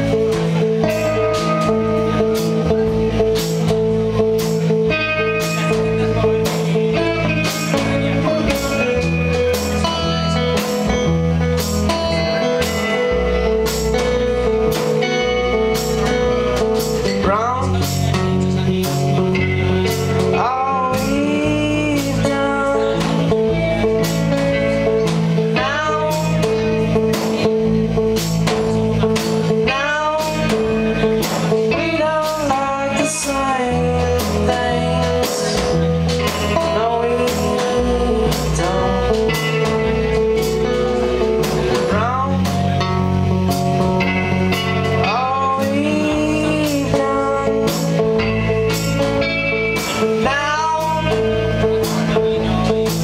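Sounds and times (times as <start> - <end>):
drum kit beat: 0.0 - 53.0
electric instrument: 0.0 - 53.0
low bass notes: 0.0 - 53.0
man singing: 16.8 - 43.3, 44.5 - 49.1, 49.8 - 53.0.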